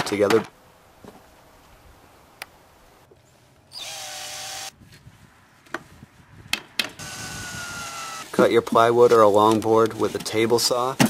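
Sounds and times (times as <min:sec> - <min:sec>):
cordless drill motor running: 0:03.8 - 0:04.7, 0:07.0 - 0:08.3.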